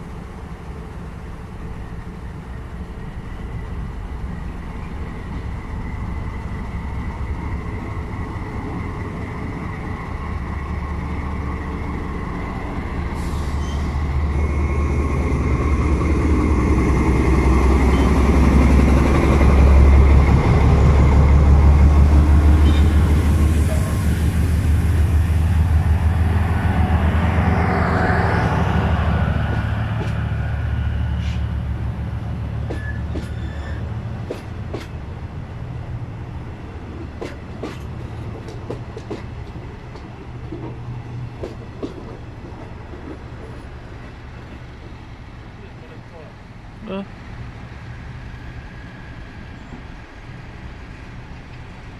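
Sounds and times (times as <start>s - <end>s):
diesel locomotive engine drone: 0.0s - 51.9s
train wheels clicking over rail joints: 32.6s - 35.0s, 36.9s - 45.1s.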